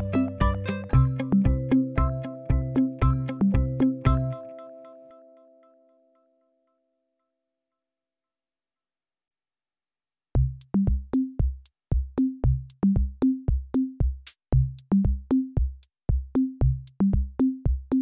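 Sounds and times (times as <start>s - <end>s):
electronic drum-machine beat: 0.0s - 4.4s, 10.4s - 18.0s.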